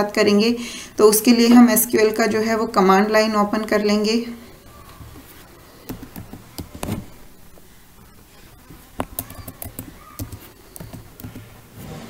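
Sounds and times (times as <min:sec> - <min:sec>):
keyboard keys clicking: 0:05.8 - 0:07.1, 0:08.7 - 0:11.6.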